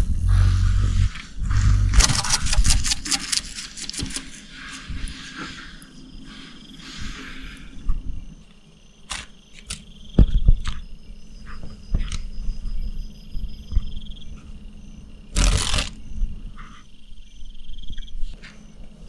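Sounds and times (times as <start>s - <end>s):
pulsing insect buzz: 12.0s - 17.0s.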